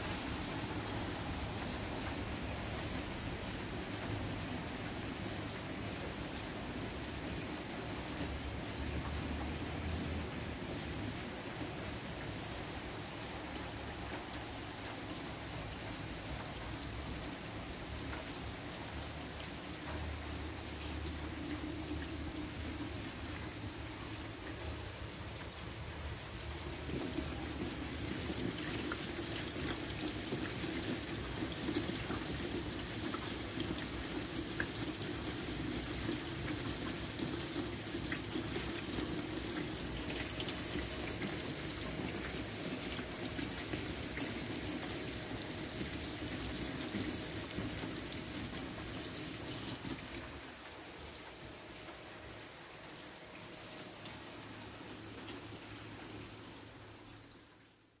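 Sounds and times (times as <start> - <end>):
rain on wet walkway: 0.0 - 58.0.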